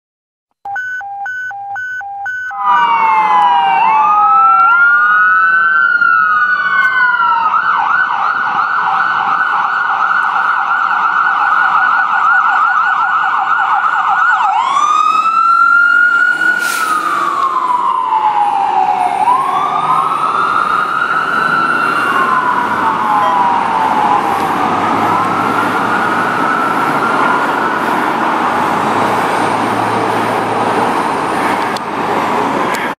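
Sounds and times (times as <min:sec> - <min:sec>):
city traffic: 0:00.7 - 0:32.9
fire engine sirens wailing: 0:00.8 - 0:32.9.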